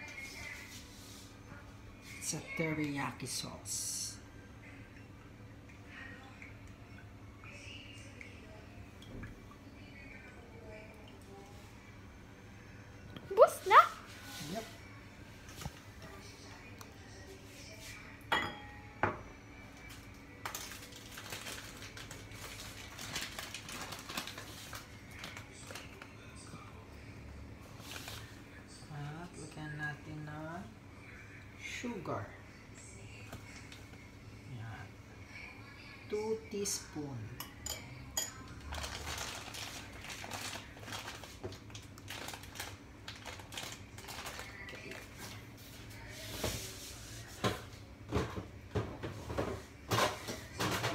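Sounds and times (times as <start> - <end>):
bag of sugar rustling: 20.5 - 26.0, 38.6 - 45.4.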